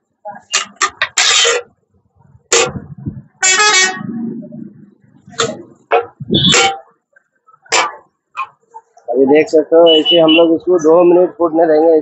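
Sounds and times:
vehicle horn honk: 3.4 - 4.2, 5.4 - 6.9, 9.8 - 10.5.

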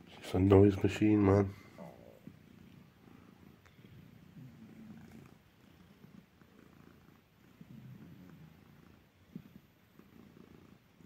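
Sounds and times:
cat purring: 0.0 - 11.0.

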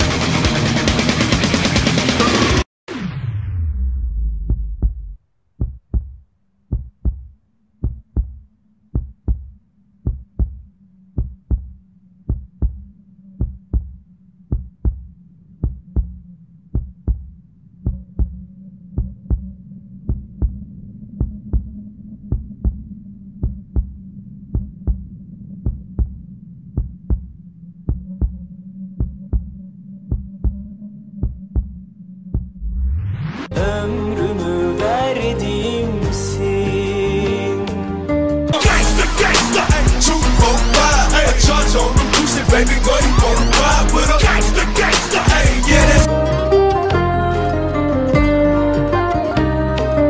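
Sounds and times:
heartbeat thumps: 4.0 - 32.9, 38.6 - 46.1
higher hum: 38.6 - 50.0.

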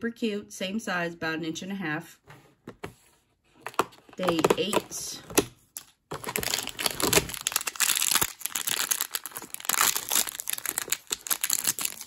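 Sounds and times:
packaging bag crinkling: 6.1 - 12.0.

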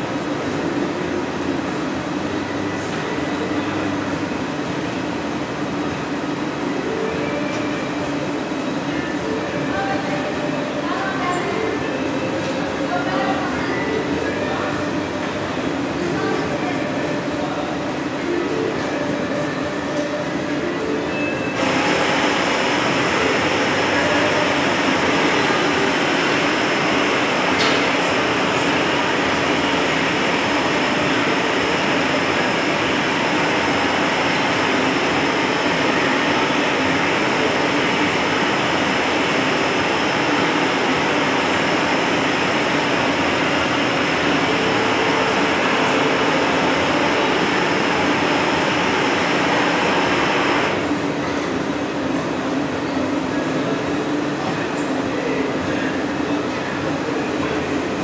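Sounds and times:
gas burners roaring: 21.5 - 58.0.

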